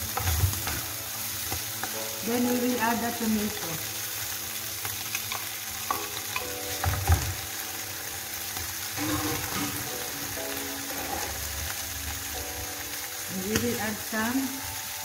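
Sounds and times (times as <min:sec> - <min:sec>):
food sizzling in a frying pan: 0:00.0 - 0:15.0
wooden spoon scraping a pan: 0:09.0 - 0:10.0, 0:10.8 - 0:11.8.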